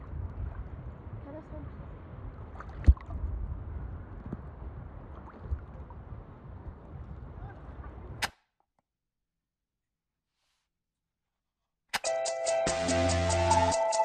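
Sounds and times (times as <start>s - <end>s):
low microphone rumble: 0.0s - 8.2s
water sloshing: 2.3s - 3.4s.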